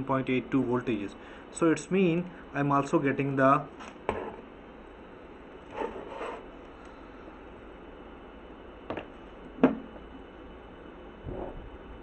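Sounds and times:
rubbing and brushing on workbench: 5.7s - 6.5s.

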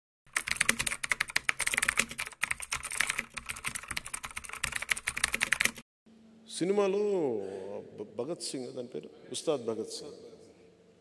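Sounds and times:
rapid keyboard typing: 0.3s - 5.8s.

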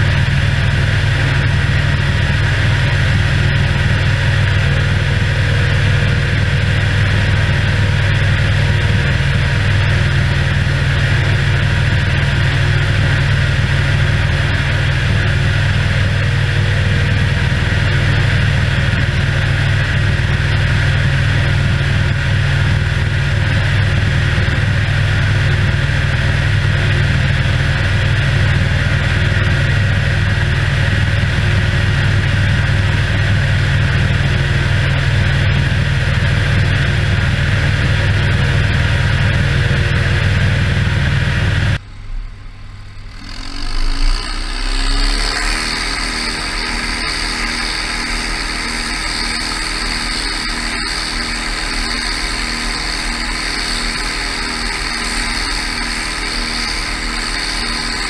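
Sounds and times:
tractor engine drone: 0.0s - 58.0s
sprayer fan rushing air: 42.5s - 58.0s.

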